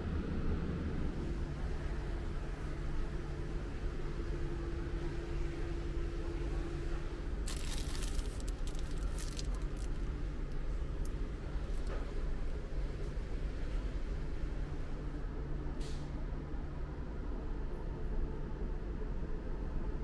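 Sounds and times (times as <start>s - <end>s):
packets crinkling: 7.4s - 10.1s.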